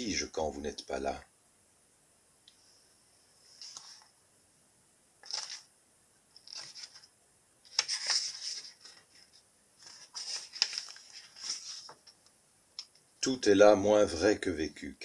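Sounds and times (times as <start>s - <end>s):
book pages rustling: 3.6s - 4.1s, 5.2s - 5.7s, 6.4s - 7.1s, 7.7s - 13.0s.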